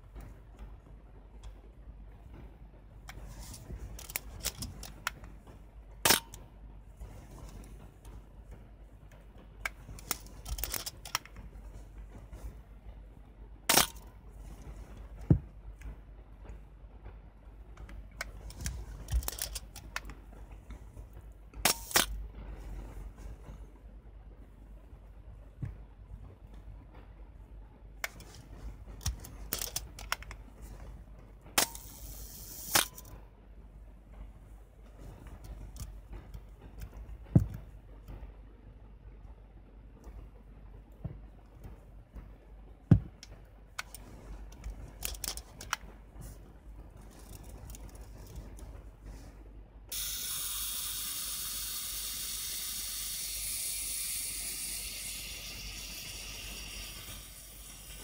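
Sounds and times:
shutter timing mechanism whirring: 13.7 - 23.7, 28.0 - 33.2, 49.9 - 58.0
camera self-timer buzzing: 49.9 - 58.0.

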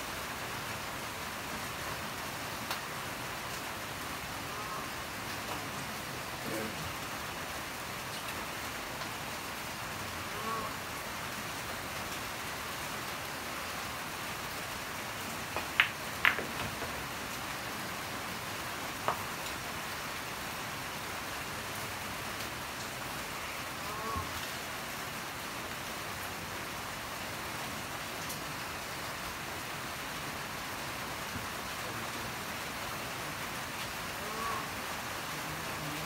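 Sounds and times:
pool balls clicking: 15.6 - 17.0.

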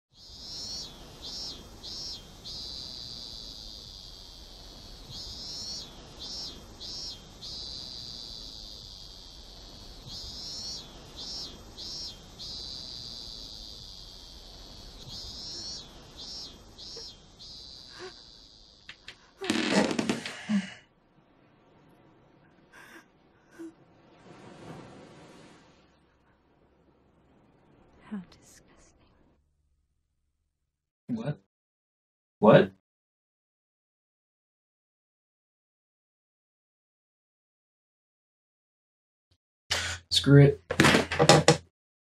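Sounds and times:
insect-like chirping and trill: 0.1 - 20.2.

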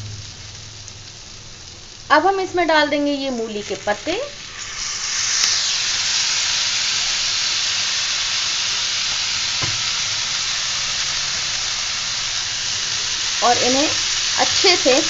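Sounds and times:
leaves sizzling in hot oil: 0.0 - 15.0
soft knock: 9.6 - 9.9.

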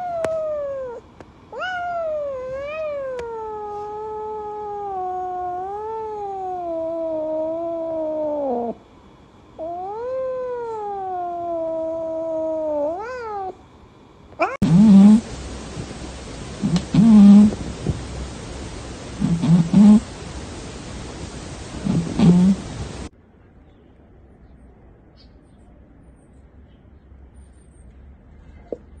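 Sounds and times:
cat yowling: 0.0 - 8.8, 9.6 - 13.6, 14.4 - 15.3, 16.6 - 18.0, 19.1 - 20.2, 20.9 - 23.1.

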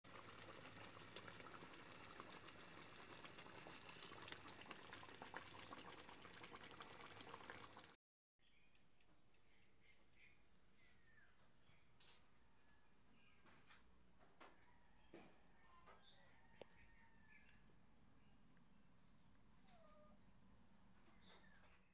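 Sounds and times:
stew bubbling in a pan: 0.0 - 8.0
insects chirring: 8.4 - 21.8.

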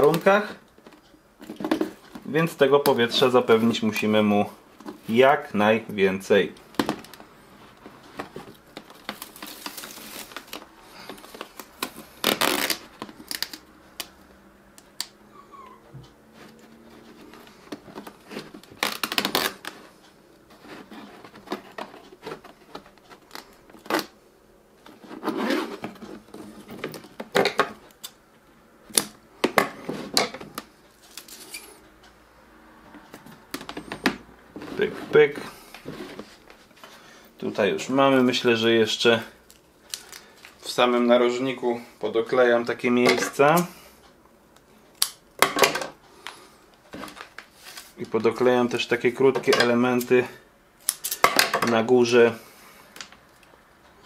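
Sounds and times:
hook-and-loop tearing rasps: 12.1 - 13.6.

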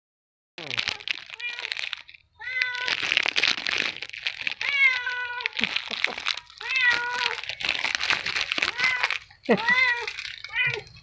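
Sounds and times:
crinkling and rustling: 0.6 - 11.0
cat meowing: 0.8 - 1.8, 2.4 - 3.0, 4.4 - 5.6, 6.5 - 7.6, 8.6 - 11.0.

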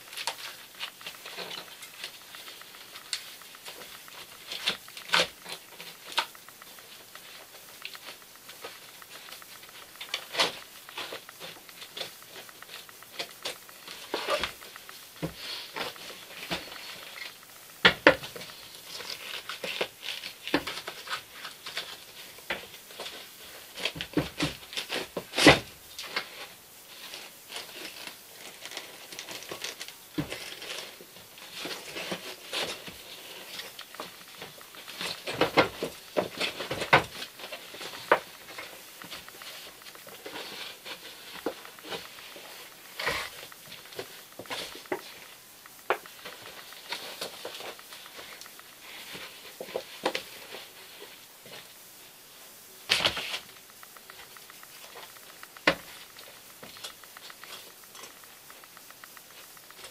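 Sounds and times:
sharp snaps: 52.8 - 59.9.

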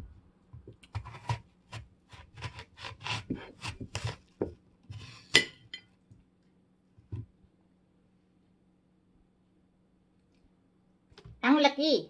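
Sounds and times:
knife crunching through apple: 0.8 - 5.4.

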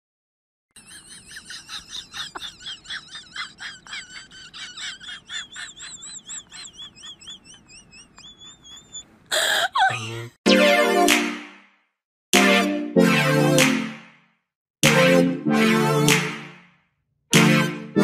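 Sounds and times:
animal high chirping call: 5.5 - 9.1.

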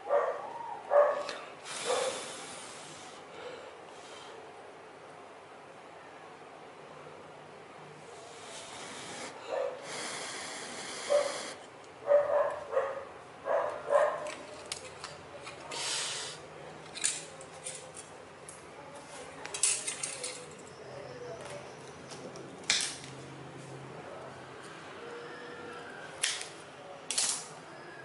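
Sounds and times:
metal strips rustling and clicking: 14.2 - 15.7, 16.8 - 18.2, 19.4 - 20.7, 26.2 - 27.5.

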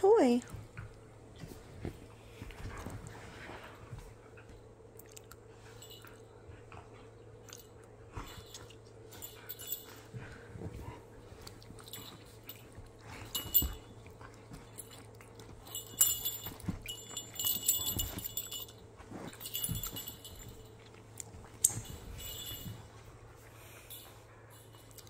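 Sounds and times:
collar tags jingling: 5.6 - 25.0.

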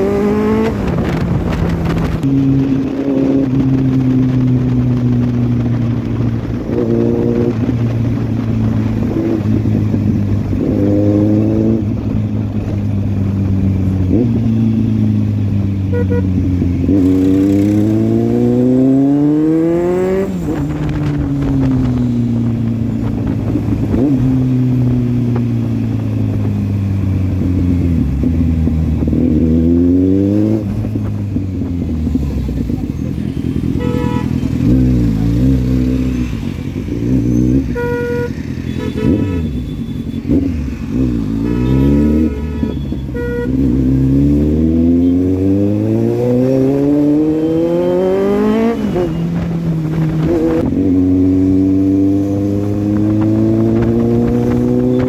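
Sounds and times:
motorcycle engine revving: 0.0 - 55.0
vehicle horns honking: 15.8 - 16.5, 33.3 - 34.8, 37.5 - 40.5, 41.2 - 43.9.

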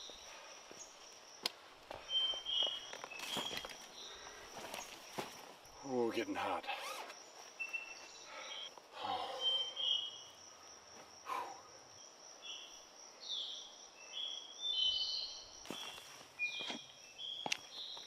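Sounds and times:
soft footfalls on trail: 0.0 - 5.7, 7.0 - 8.5, 15.6 - 18.0
insects droning: 0.0 - 18.0.

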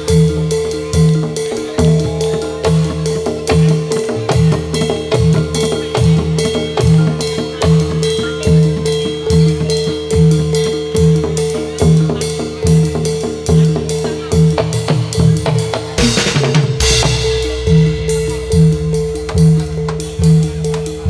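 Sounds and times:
drums beating: 0.0 - 21.0
steady held tone: 16.0 - 21.0.

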